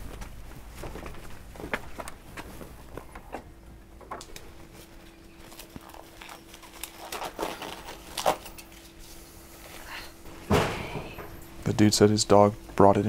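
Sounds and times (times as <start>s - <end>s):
footsteps on wooden deck: 0.0s - 4.2s
steady hum: 0.0s - 13.0s.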